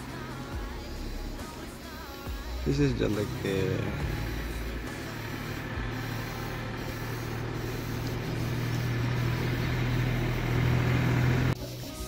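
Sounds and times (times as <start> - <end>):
engine running low hum: 0.0 - 12.0.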